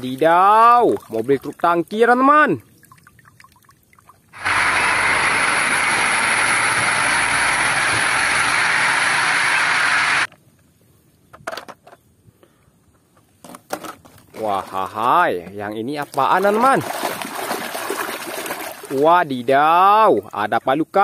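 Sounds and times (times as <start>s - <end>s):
diesel truck engine roaring: 4.4s - 10.3s.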